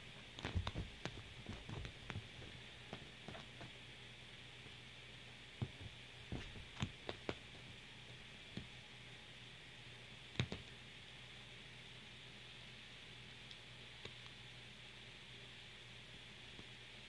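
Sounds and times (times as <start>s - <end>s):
steady low hiss: 0.0s - 17.0s
kitten thumps on sofa cushion: 0.4s - 2.3s, 5.6s - 7.3s.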